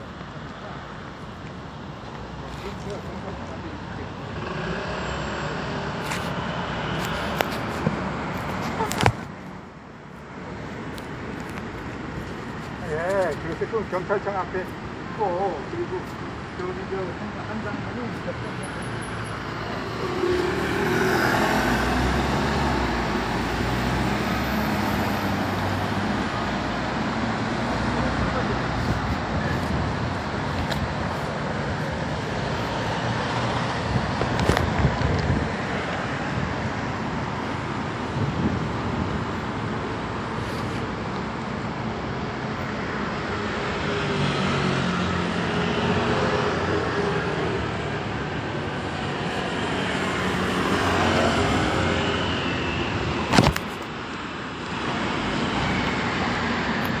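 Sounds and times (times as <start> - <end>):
road traffic noise: 0.0 - 57.0
engine hum: 18.7 - 36.2.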